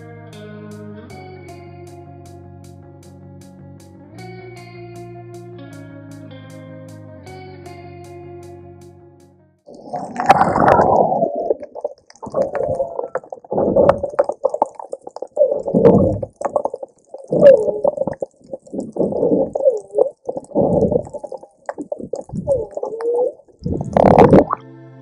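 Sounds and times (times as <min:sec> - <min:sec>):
whales calling underwater: 0:09.7 - 0:24.6.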